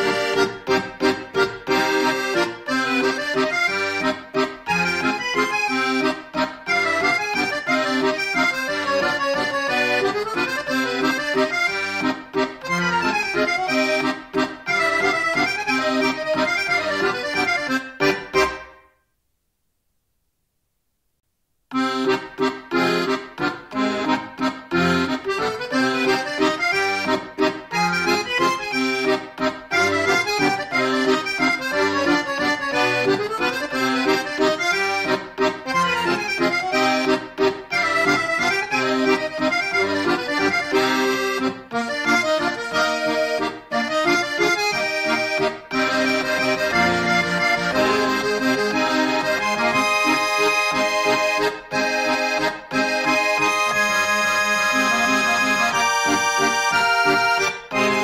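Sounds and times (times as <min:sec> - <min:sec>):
instrumental background music: 0:21.8 - 0:58.0.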